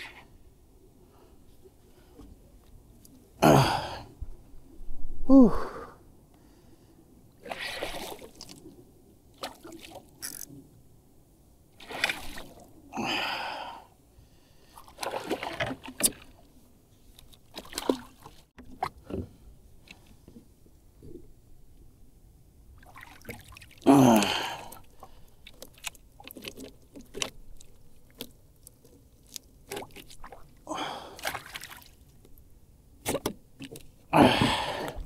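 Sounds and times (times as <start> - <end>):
person grunting: 3.4 - 4.0, 5.3 - 5.9, 23.9 - 24.7, 34.1 - 34.8
person breathing hard: 5.3 - 7.0, 13.0 - 14.8, 30.7 - 31.2, 34.2 - 35.0.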